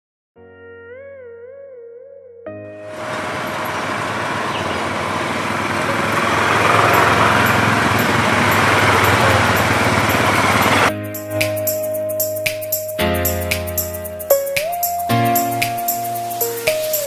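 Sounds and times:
quad bikes driving past: 2.9s - 10.9s.

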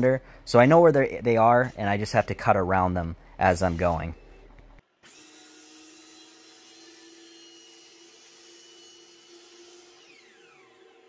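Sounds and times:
miter saw motor whining: 5.0s - 11.0s.

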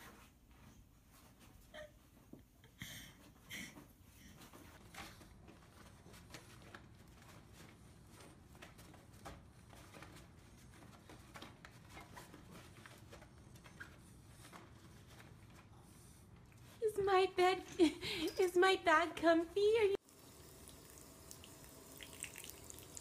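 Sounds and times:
dog pawing at fabric: 4.4s - 15.8s.

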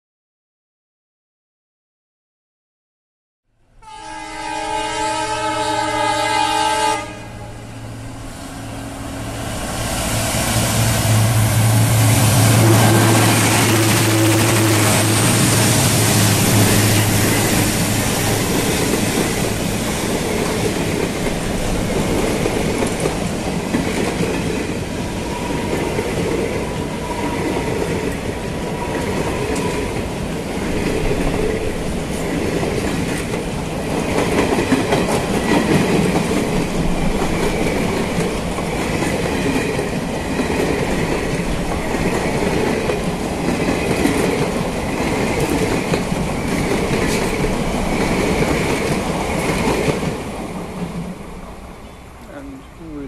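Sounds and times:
locomotive air horn: 3.8s - 7.5s, 12.2s - 15.5s
train wheels clacking over rail joints: 12.6s - 51.0s.

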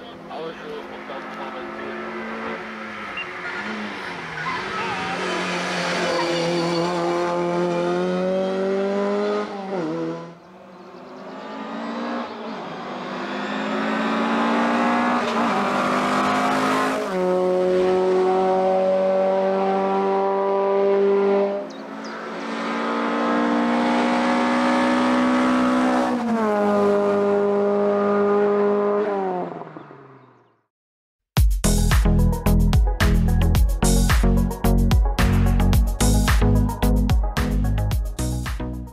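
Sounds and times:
racing car engines: 0.0s - 30.6s.

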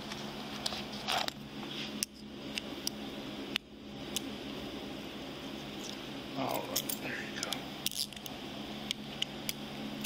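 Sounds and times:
room hum: 0.0s - 10.0s.

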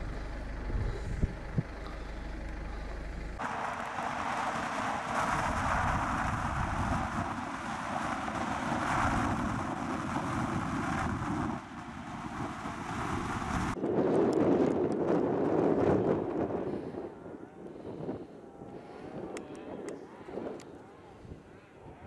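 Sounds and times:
road and wind noise in car: 0.0s - 17.2s.

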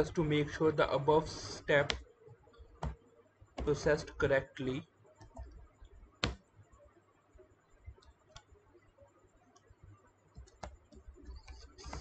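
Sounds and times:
computer keys clicking: 10.3s - 12.0s.

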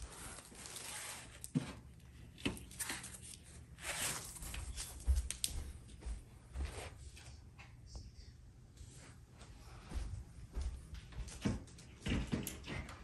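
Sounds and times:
plastic wrap rustling: 0.0s - 1.9s, 2.6s - 5.5s.

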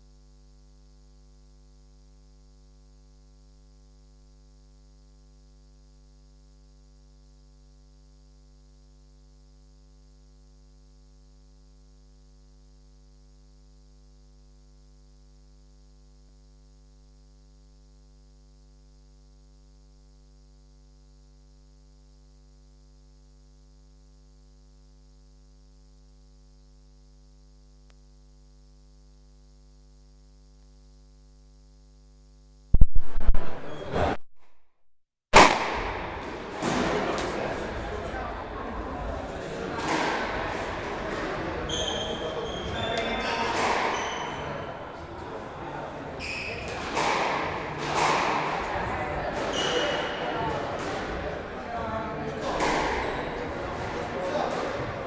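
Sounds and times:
electrical mains hum: 0.0s - 34.2s.

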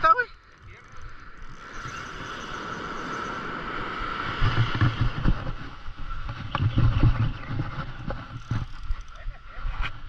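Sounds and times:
spinning reel cranking: 0.4s - 3.6s, 8.4s - 9.2s.

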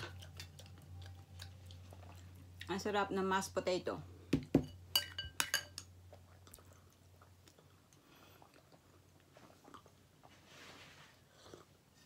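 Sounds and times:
metal spoon clinking on ceramic bowl: 4.6s - 5.9s.

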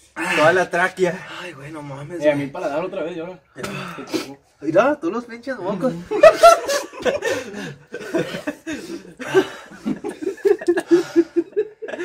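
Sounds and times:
young men laughing: 5.8s - 12.0s.

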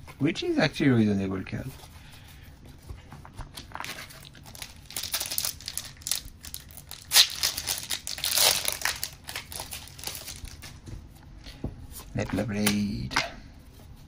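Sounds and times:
plastic wrapper crinkling and tearing: 3.6s - 10.8s.

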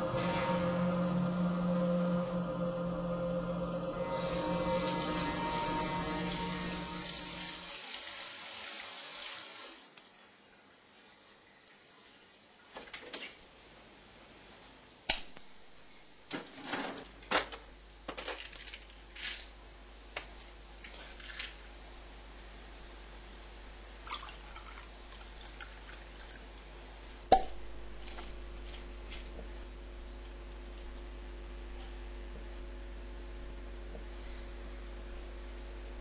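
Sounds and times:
steady electrical hum: 0.0s - 8.1s.

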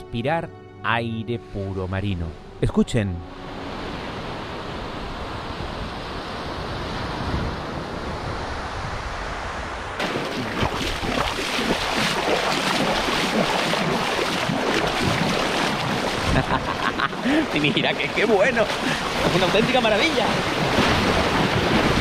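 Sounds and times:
waves washing on beach: 3.5s - 22.0s
splashing through shallows: 10.0s - 22.0s.

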